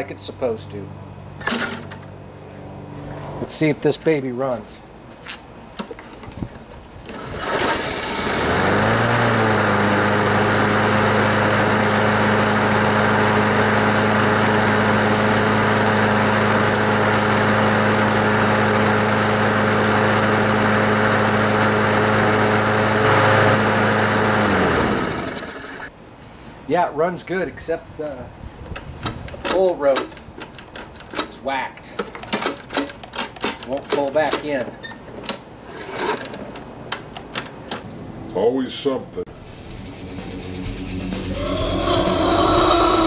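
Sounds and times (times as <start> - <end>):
lawn mower engine running: 7.0 - 25.9, 39.3 - 43.0.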